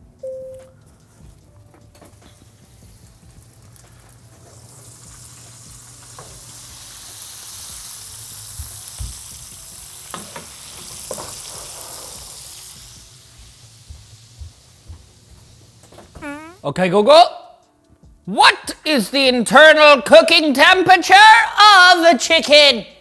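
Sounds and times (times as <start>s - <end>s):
juices sizzling in roasting pan: 2.4s - 16.0s.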